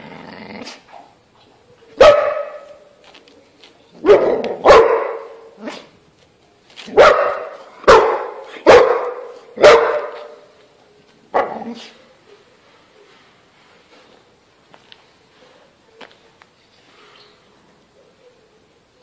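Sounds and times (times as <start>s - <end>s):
dog barking loudly: 2.0s - 2.8s, 4.0s - 5.9s, 6.9s - 10.5s, 11.3s - 11.9s.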